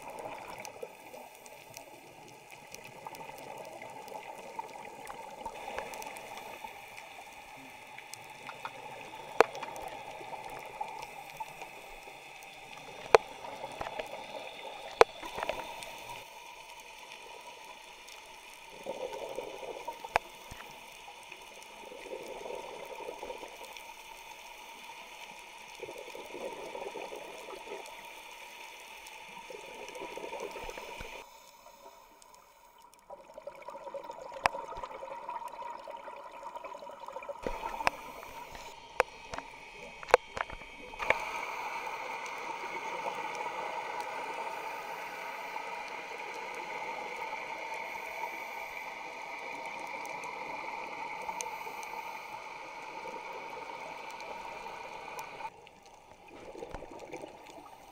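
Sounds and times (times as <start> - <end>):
steady underwater noise: 0.0 - 57.9
exhaled bubbles: 32.8 - 52.2, 52.8 - 57.9.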